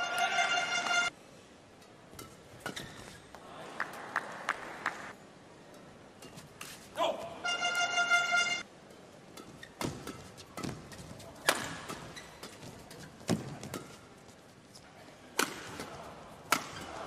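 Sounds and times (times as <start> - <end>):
rackets striking shuttlecock: 8.9 - 14.2, 15.4 - 17.0.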